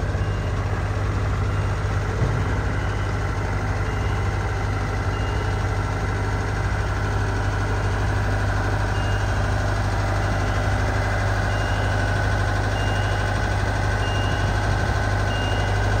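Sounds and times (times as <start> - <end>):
diesel engine running: 0.0 - 16.0
short high alarm beeps: 11.5 - 12.1, 12.7 - 13.3, 14.0 - 14.6, 15.2 - 16.0.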